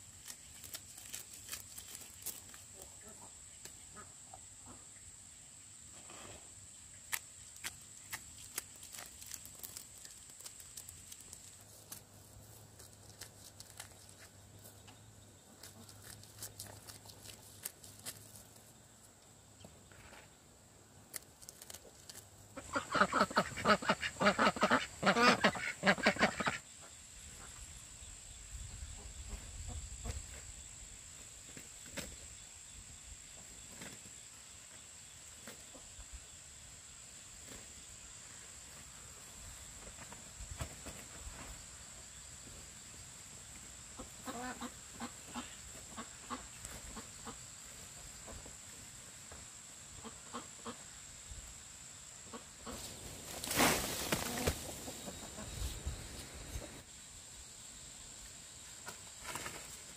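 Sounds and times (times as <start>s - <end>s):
ducks quacking: 22.6s - 26.6s, 44.0s - 47.4s.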